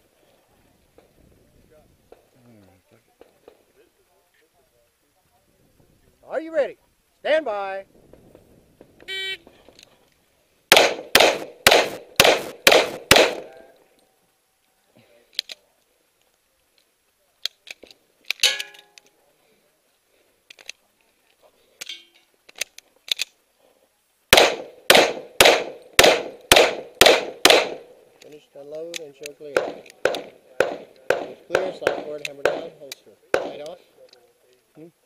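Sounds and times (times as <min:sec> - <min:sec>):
pistol shots: 0:10.7 - 0:13.6, 0:24.3 - 0:28.0, 0:29.5 - 0:33.7.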